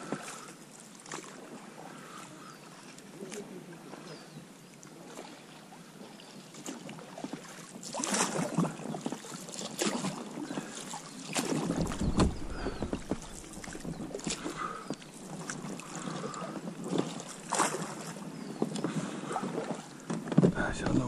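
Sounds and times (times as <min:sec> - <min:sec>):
water splashing: 0:06.6 - 0:21.0
boat knocks and scrapes: 0:11.4 - 0:21.0
dull low thump: 0:11.6 - 0:15.7, 0:20.3 - 0:21.0.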